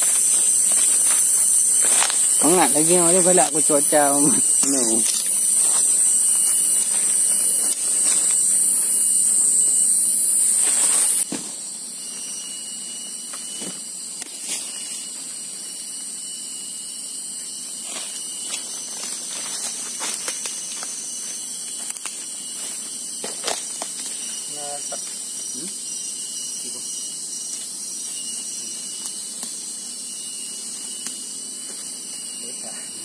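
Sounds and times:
rustling and snapping in undergrowth: 0:00.0 - 0:02.5, 0:04.5 - 0:08.8, 0:18.5 - 0:20.9
cicadas droning: 0:00.0 - 0:33.0.

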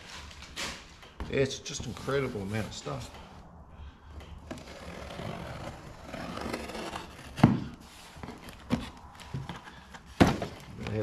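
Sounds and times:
packaging rustling and scraping: 0:04.4 - 0:11.0.

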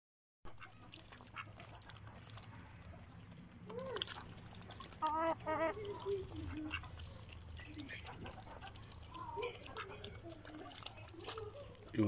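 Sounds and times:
poultry calling: 0:04.0 - 0:09.0.

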